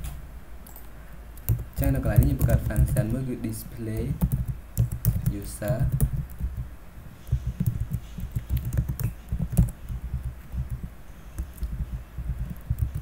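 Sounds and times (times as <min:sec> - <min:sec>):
typing on computer keyboard: 0:01.4 - 0:03.2, 0:03.9 - 0:06.7, 0:07.3 - 0:13.0.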